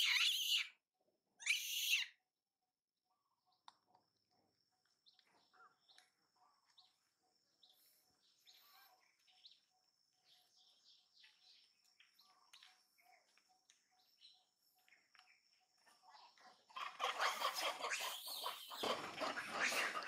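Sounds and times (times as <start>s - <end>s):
high bird chirps: 0.0s - 0.7s, 1.4s - 2.1s.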